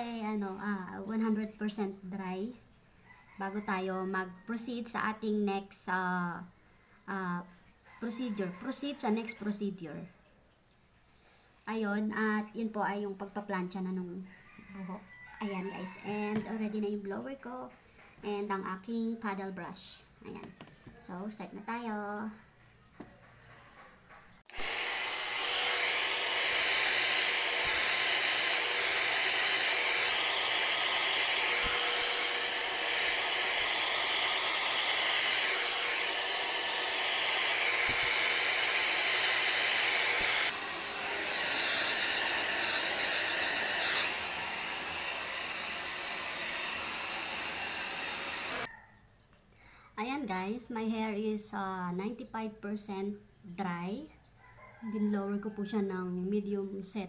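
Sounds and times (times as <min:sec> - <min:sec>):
hair dryer blowing: 0:24.5 - 0:48.7.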